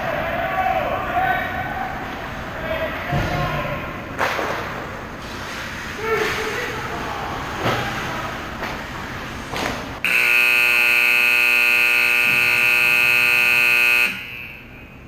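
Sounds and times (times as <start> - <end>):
skates and sticks scraping ice: 4.2 - 9.9
long buzzer blast: 10.0 - 14.9.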